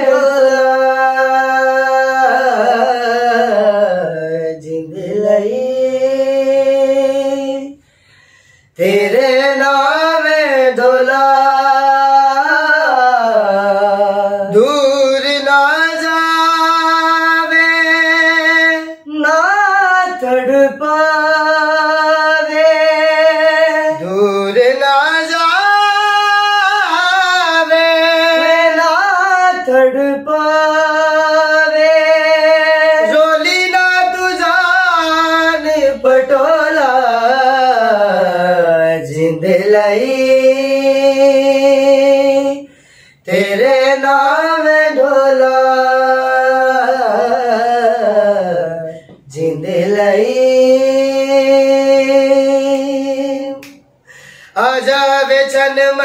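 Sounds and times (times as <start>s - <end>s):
men singing unaccompanied: 0.0s - 7.8s, 8.8s - 53.8s, 54.5s - 56.0s.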